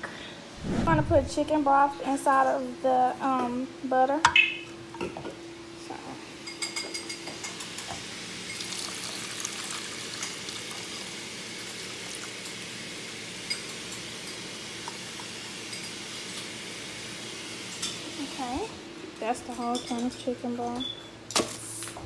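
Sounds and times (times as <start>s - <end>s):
liquid pouring into a pot: 8.5s - 12.6s.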